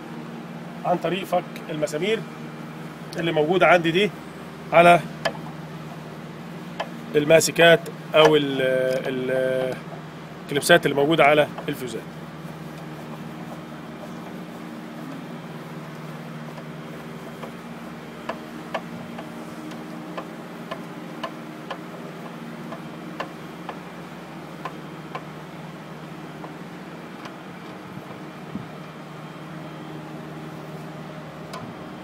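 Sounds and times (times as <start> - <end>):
low hum: 1.8 - 22.0.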